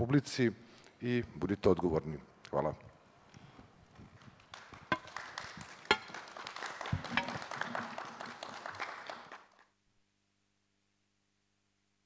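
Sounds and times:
audience applauding: 4.2 - 9.7.

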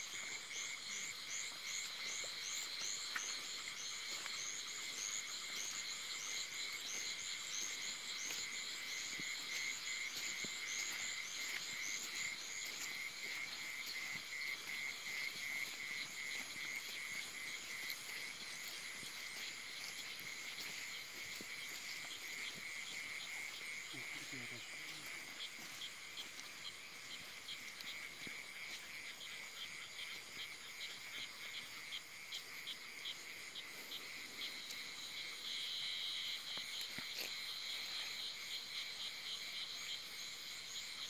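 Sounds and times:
rapid high insect chirps: 0.0 - 41.0.

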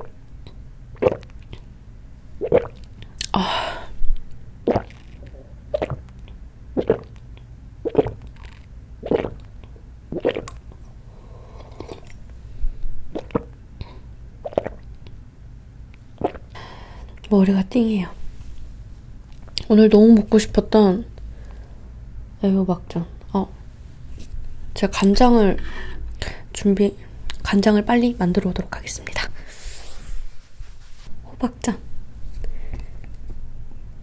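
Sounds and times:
person swallowing and gulping: 0.9 - 1.7, 2.4 - 10.8, 11.5 - 12.3, 13.0 - 15.2, 16.2 - 16.6.

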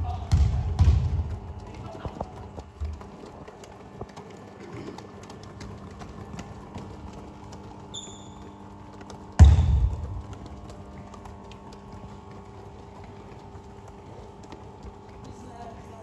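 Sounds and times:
loud deep thump: 0.0 - 1.4, 9.4 - 10.3
basketballs slapping hands: 0.0 - 16.0
shoe squeak: 7.8 - 8.8.

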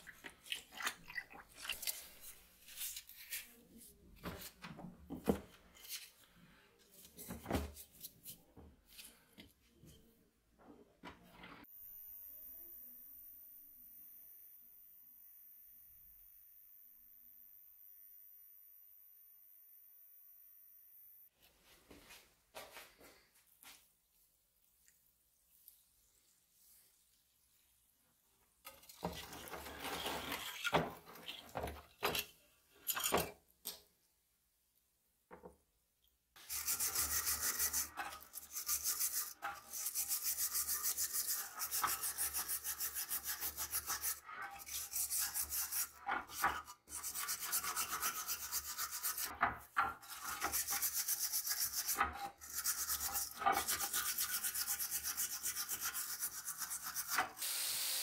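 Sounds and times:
wire brush scrubbing metal underwater: 36.4 - 49.4.

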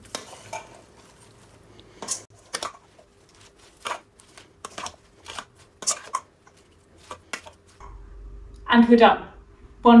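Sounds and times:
metal utensils scraping steel bowl: 0.0 - 7.6.

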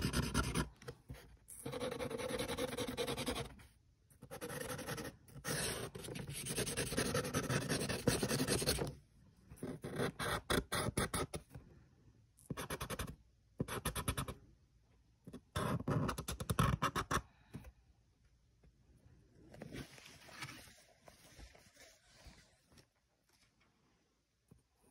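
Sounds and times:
marker scribbling on paper: 0.0 - 0.7, 1.6 - 3.5, 4.2 - 8.9.

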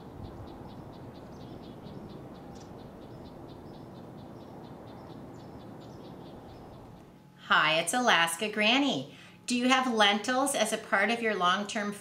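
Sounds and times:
high chirping animal calls: 0.0 - 7.1.

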